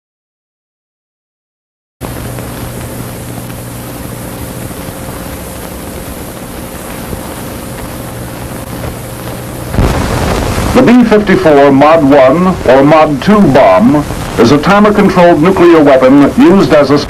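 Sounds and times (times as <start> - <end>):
film soundtrack hiss: 2.0 - 17.0
low hum: 2.0 - 17.0.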